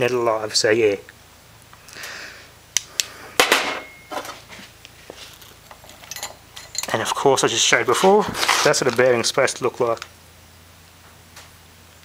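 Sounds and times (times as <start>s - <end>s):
handling rustle: 4.1s - 7.2s, 7.9s - 10.1s.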